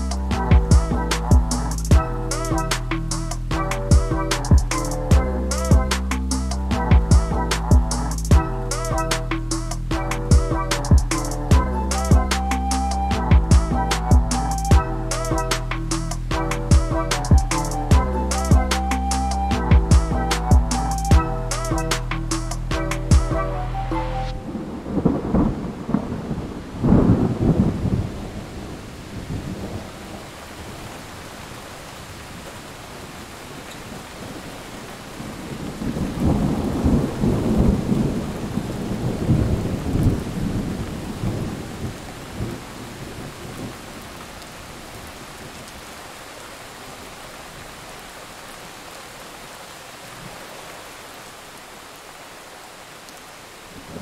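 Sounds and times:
rain hiss: 1.1s - 3.6s, 7.5s - 13.0s, 13.9s - 16.4s, 24.4s - 54.0s
rolling thunder: 24.4s - 30.8s, 35.2s - 44.2s.

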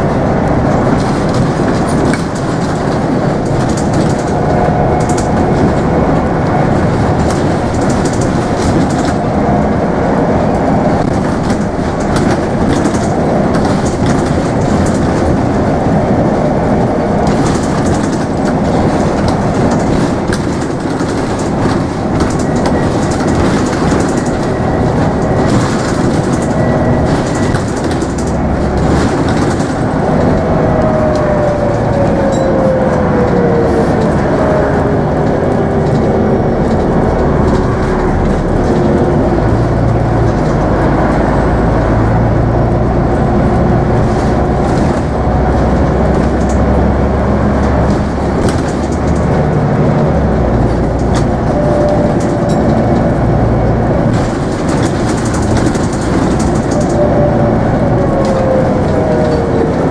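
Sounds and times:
bus diesel engine and road noise: 0.0s - 59.9s.

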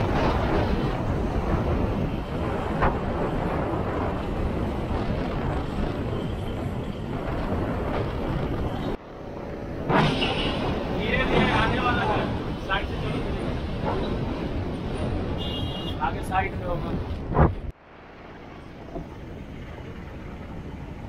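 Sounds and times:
vehicle and road rumble: 0.0s - 21.0s
wind buffeting microphone: 0.0s - 21.0s.

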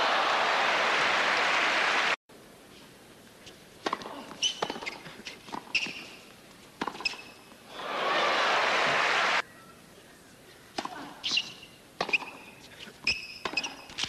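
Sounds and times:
crowd applause: 0.0s - 2.2s, 7.7s - 9.4s
ball bouncing: 3.8s - 6.0s, 6.8s - 7.2s, 12.0s - 12.4s
racket striking ball: 3.8s - 6.1s, 6.8s - 7.4s, 10.8s - 14.0s
shoe squeaks on court: 4.4s - 6.2s, 6.9s - 7.5s, 11.2s - 14.0s.

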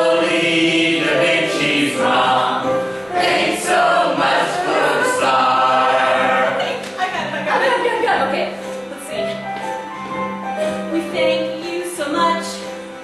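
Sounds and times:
voices singing hymn-style song: 0.0s - 7.8s.

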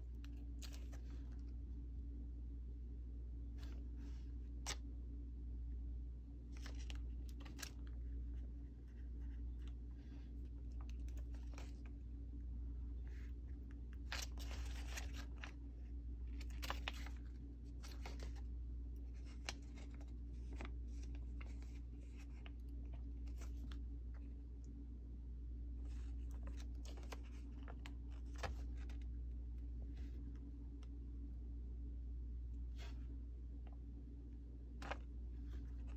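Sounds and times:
steady low hum: 0.0s - 35.9s
plastic sheets crackling and rustling: 6.5s - 8.0s, 13.9s - 18.5s, 25.8s - 29.1s.

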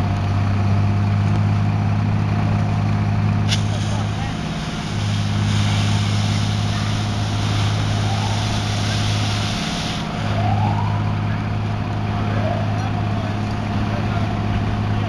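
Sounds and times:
large engine humming: 0.0s - 15.0s
fire hose spraying water: 3.3s - 11.1s.

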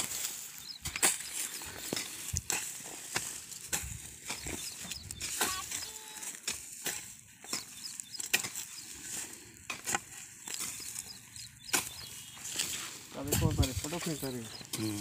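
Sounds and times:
hoes chopping into dry soil: 0.0s - 15.0s.

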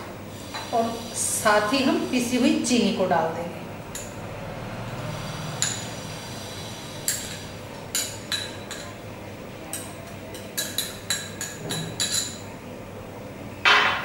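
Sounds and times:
metal spoon clinking against glass: 9.7s - 12.4s.

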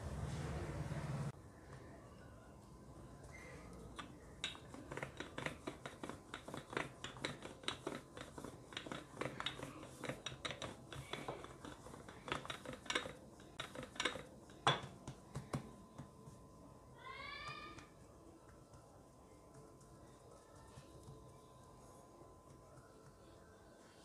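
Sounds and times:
rolling pin tapping on stone: 3.9s - 16.1s.

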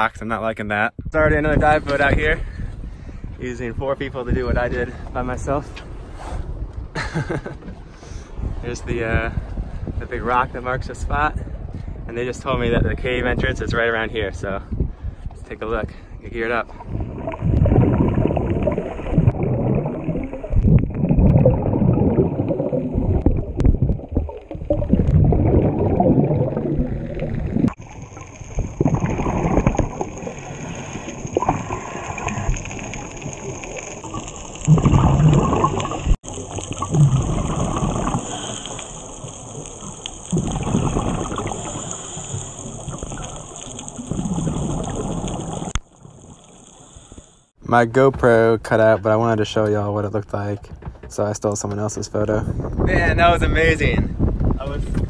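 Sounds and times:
exhaled air bubbling underwater: 16.6s - 47.5s
diver breathing through regulator: 38.0s - 39.1s, 41.4s - 43.4s.

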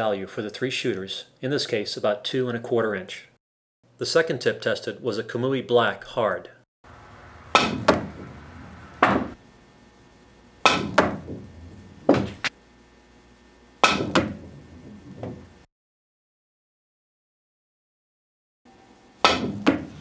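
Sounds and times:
ball knocking cushion: 12.1s - 12.5s, 19.3s - 19.9s
cue striking ball clicks: 19.2s - 19.9s.

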